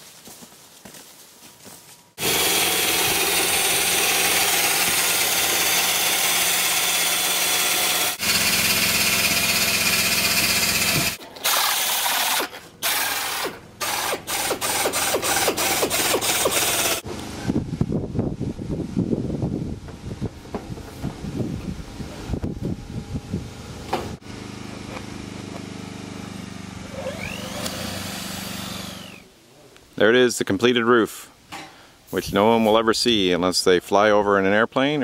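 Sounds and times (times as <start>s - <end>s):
air tool on metal panel: 2.2s - 17.0s.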